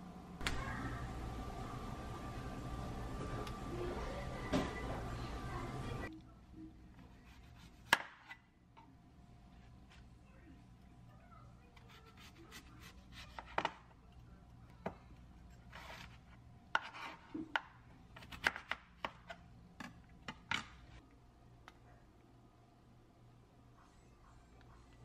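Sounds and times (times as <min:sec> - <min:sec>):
knife chopping on cutting board: 0:07.2 - 0:08.4, 0:16.7 - 0:19.4.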